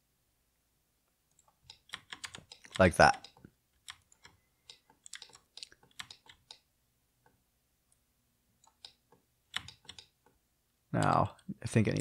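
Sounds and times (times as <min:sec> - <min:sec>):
keyboard and mouse clicks: 0:01.3 - 0:07.4, 0:08.6 - 0:10.4.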